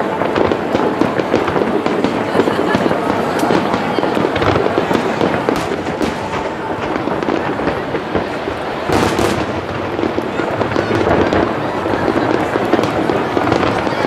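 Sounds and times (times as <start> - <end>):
fireworks bursts and bangs: 0.0 - 14.0
fireworks crackling: 0.0 - 14.0.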